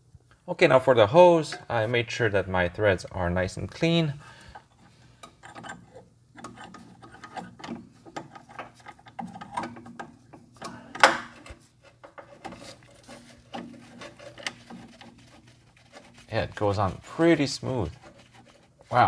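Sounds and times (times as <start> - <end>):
metal fitting clicking and rubbing: 4.4 - 19.0.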